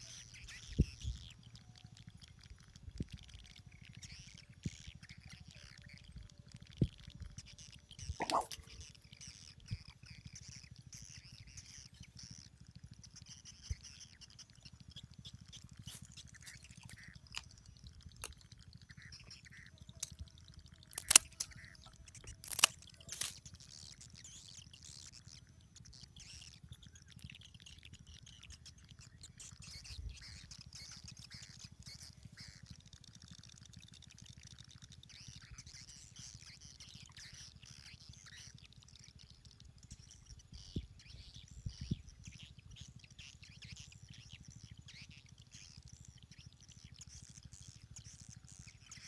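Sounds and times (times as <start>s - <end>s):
small birds chirping: 0.0s - 49.0s
scissors snapping through bait: 8.2s - 8.7s, 20.9s - 21.6s, 22.3s - 23.4s.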